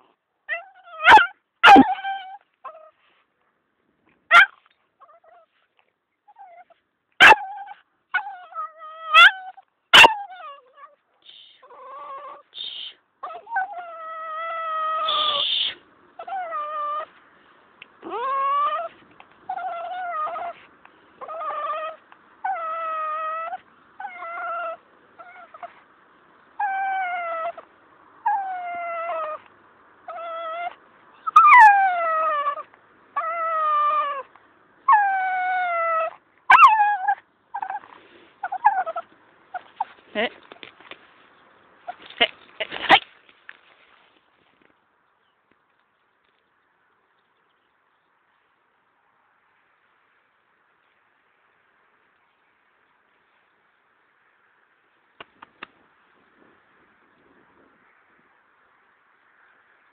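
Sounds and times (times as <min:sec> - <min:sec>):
dog whining: 0:00.5 - 0:03.0, 0:04.3 - 0:05.6, 0:06.3 - 0:11.0, 0:11.6 - 0:12.5, 0:13.2 - 0:17.1, 0:18.0 - 0:20.6, 0:21.2 - 0:25.8, 0:26.6 - 0:27.6, 0:28.2 - 0:29.4, 0:30.1 - 0:34.3, 0:34.9 - 0:39.9
dog yipping: 0:00.5 - 0:03.0, 0:04.3 - 0:05.6, 0:06.3 - 0:11.0, 0:13.2 - 0:17.1, 0:19.5 - 0:20.6, 0:21.2 - 0:25.8, 0:30.1 - 0:34.3, 0:34.9 - 0:40.0.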